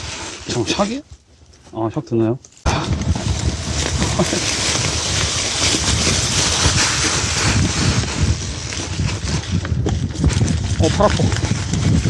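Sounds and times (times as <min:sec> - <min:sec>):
dry leaves crunching under tyres: 0:02.4 - 0:09.4
wind rushing over microphone: 0:02.7 - 0:12.0
bike rattling over bumps: 0:02.8 - 0:12.0.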